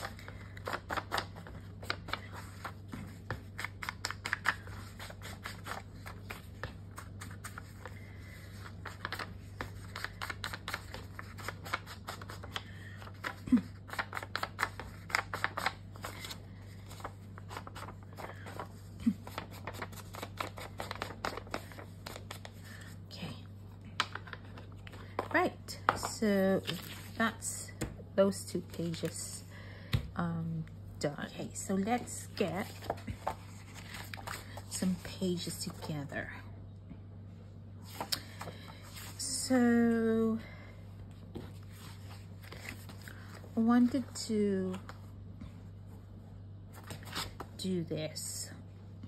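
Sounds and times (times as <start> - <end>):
paper being handled: 0.0 - 23.0, 24.0 - 27.4, 31.9 - 35.9, 41.4 - 44.1
low steady hum: 0.0 - 49.0.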